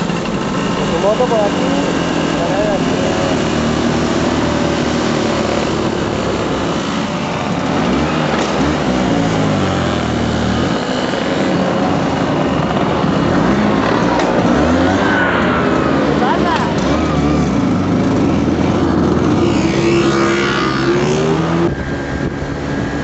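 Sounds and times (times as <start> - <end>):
motor scooter engines running: 0.0 - 23.0.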